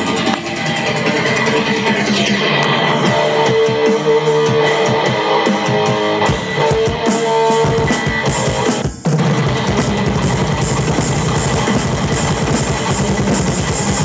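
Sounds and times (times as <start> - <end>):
distorted electric guitar: 0.0 - 14.0
electronic drum kit: 0.0 - 14.0.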